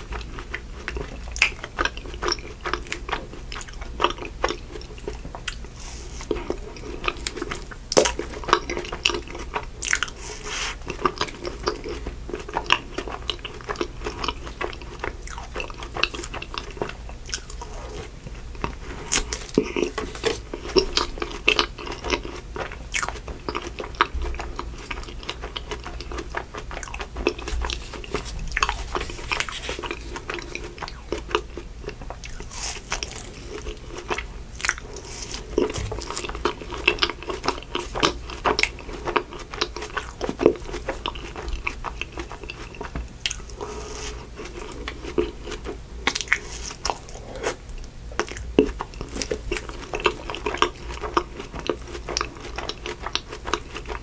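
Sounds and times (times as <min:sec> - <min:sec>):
crunchy ice cream bar chewing: 0:00.0 - 0:54.0.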